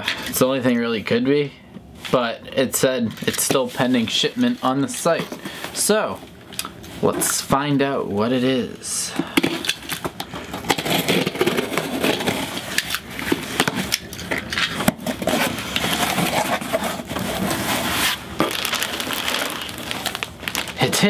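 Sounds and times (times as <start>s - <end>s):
plastic bag crinkling: 9.6s - 21.0s
cardboard box scraping and tearing: 10.6s - 12.6s, 14.8s - 20.9s.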